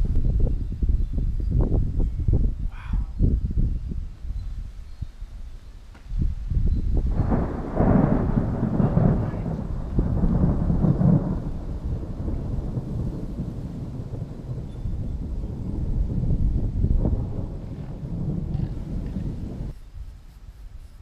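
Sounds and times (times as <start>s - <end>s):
thunder rumbling: 6.2s - 19.8s.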